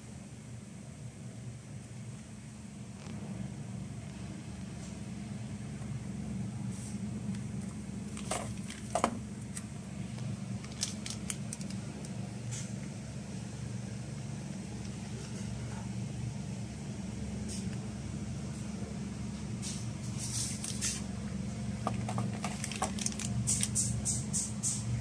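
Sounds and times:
steady low hum: 0.0 - 25.0
objects clicking and tapping: 10.6 - 12.2, 21.8 - 24.8.

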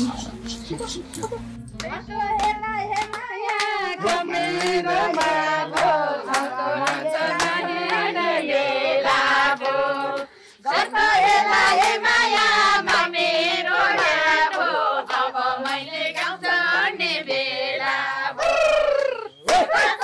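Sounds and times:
voices singing: 0.0 - 20.0
hand clapping: 1.8 - 8.1, 11.1 - 13.1, 14.0 - 16.4, 18.6 - 20.0.

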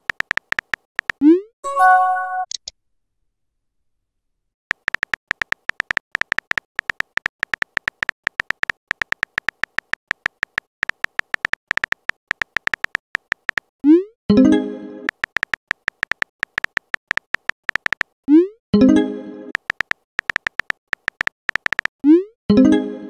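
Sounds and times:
keyboard typing clicks: 0.0 - 1.3, 4.7 - 13.7, 15.1 - 18.2, 19.5 - 22.0.

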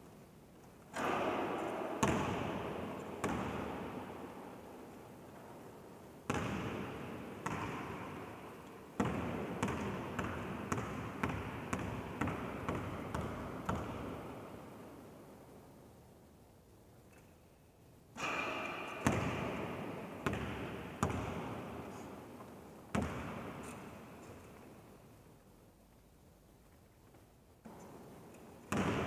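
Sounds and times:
basketball bouncing with echo: 0.9 - 4.4, 6.2 - 14.6, 18.2 - 22.0, 22.9 - 24.0, 28.6 - 29.0.

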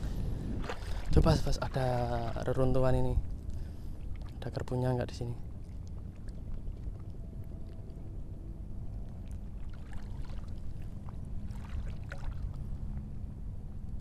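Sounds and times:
light splashes: 0.0 - 4.8, 8.9 - 13.1
faint steady hum: 0.0 - 14.0
shallow water: 0.0 - 14.0
wind: 0.0 - 14.0.

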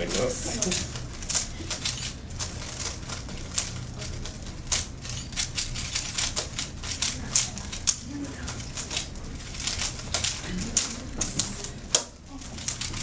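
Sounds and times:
puzzle cubes clicking as turned: 0.1 - 13.0.

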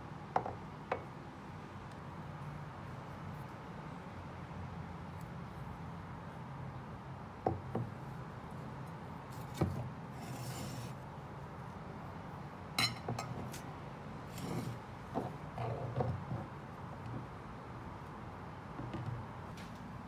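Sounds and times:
glass rubbing: 10.2 - 11.0, 14.3 - 16.5.

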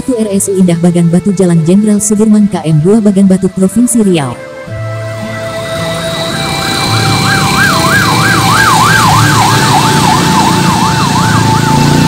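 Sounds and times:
low rumble of traffic: 0.0 - 12.0
ambulance siren yelp: 2.6 - 12.0
steady siren tone: 3.8 - 12.0.

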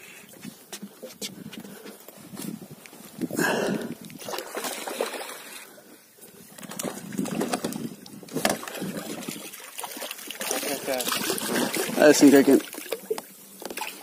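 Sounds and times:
water sloshing against boat: 3.2 - 14.0.

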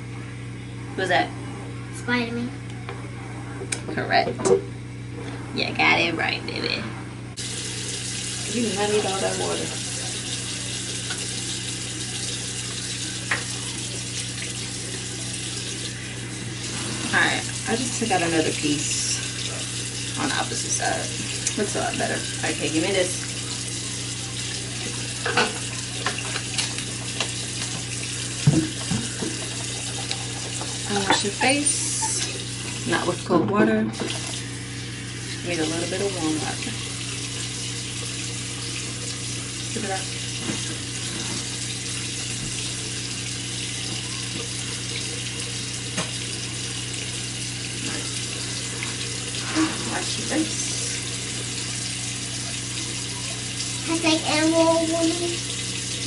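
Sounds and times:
tap running into sink: 7.4 - 11.5, 13.1 - 14.6, 24.3 - 34.4, 39.8 - 43.0, 43.6 - 47.2
water running from sink tap: 7.4 - 56.0.

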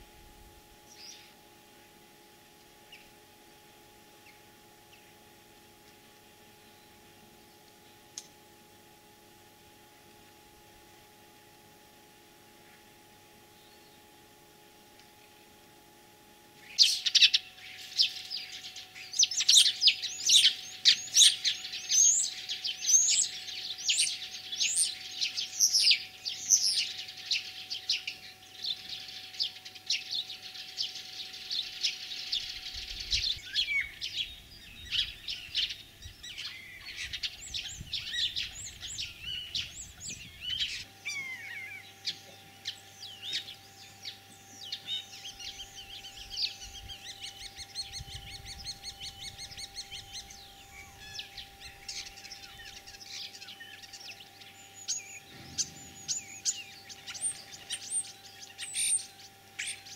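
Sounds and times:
starling singing: 16.6 - 59.9.

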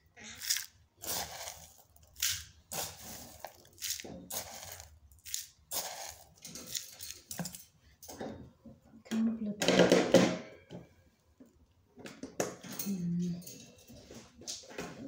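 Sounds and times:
bird seed rattling in plastic tray: 0.4 - 7.6.

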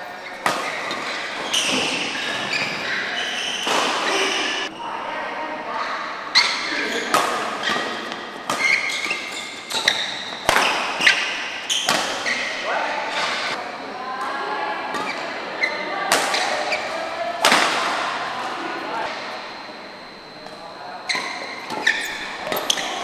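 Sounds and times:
shoes squeaking on court: 0.0 - 4.8, 6.4 - 13.6, 18.4 - 23.0
rackets striking shuttlecock: 7.1 - 12.3, 17.4 - 18.1.

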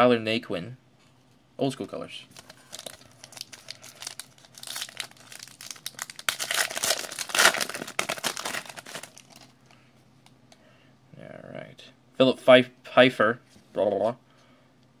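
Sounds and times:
foil wrapper crinkling and tearing: 2.4 - 9.5.

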